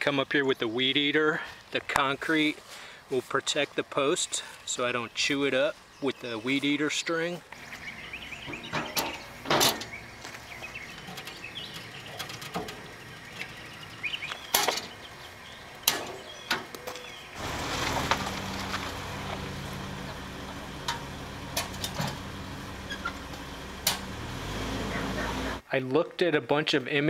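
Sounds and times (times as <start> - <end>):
car engine idling: 7.6 - 25.6
metal mailbox door clanking: 8.5 - 10.0, 11.0 - 12.9, 14.5 - 15.0, 15.8 - 16.7, 20.8 - 24.1.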